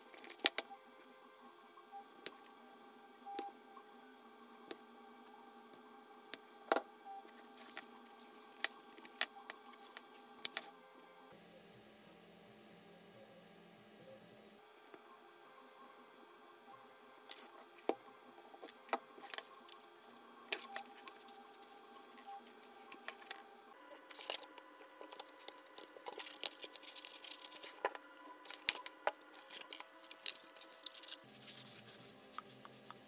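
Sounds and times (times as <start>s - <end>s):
faint steady hum: 0.0s - 33.0s
hands handling foam board parts: 6.7s - 10.7s, 20.5s - 33.0s.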